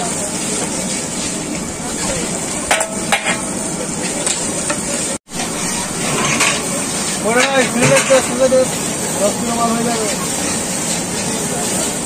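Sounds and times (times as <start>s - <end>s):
frying sizzle: 0.0s - 12.0s
metal spatula scraping a pan: 5.5s - 8.7s.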